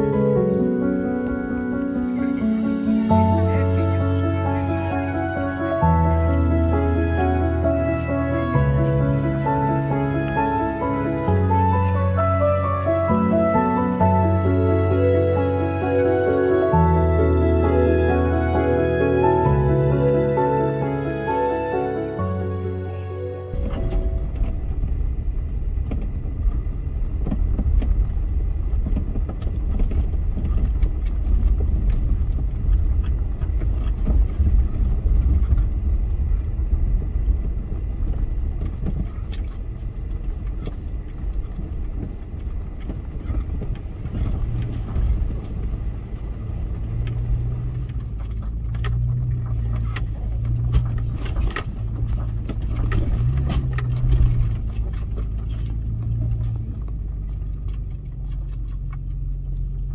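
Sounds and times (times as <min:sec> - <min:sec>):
vehicle engine and tyres rumbling: 0:00.0 - 0:59.9
stones and suspension knocking: 0:23.5 - 0:59.9.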